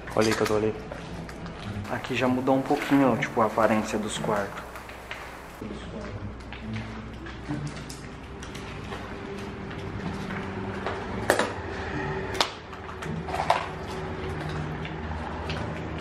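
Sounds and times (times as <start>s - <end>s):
footsteps on rubble: 1.9s - 5.6s
low steady drone: 1.9s - 5.6s
sharp cracks: 1.9s - 5.6s.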